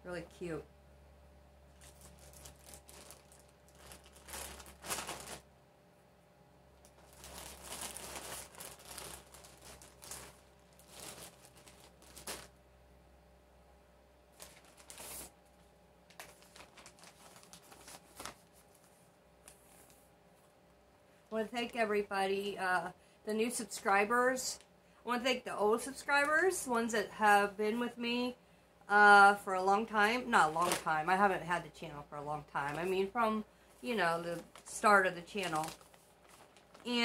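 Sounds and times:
plastic bags crinkling: 1.7s - 5.5s, 6.8s - 12.6s, 14.3s - 15.4s, 16.1s - 20.0s, 29.6s - 37.0s.

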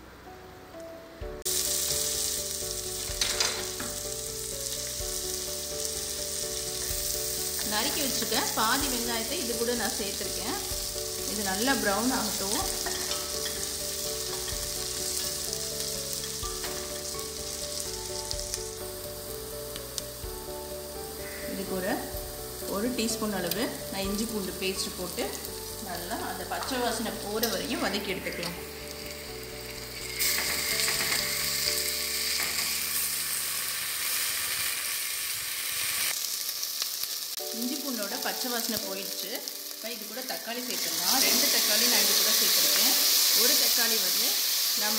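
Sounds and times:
onions sizzling in hot oil: 1.4s - 44.9s.

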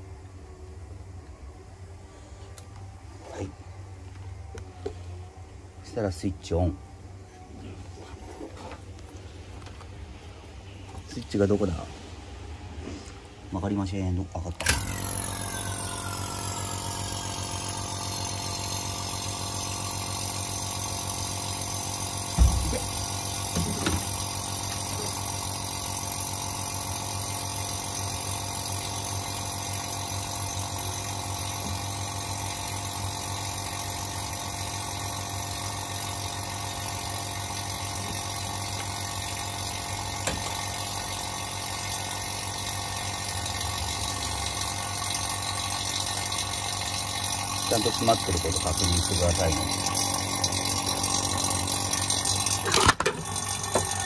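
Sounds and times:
vacuum pump running: 0.0s - 54.0s.

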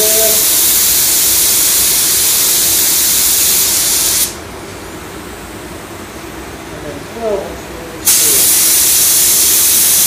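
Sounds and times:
paint spray gun hissing: 0.1s - 4.4s, 8.1s - 10.0s.

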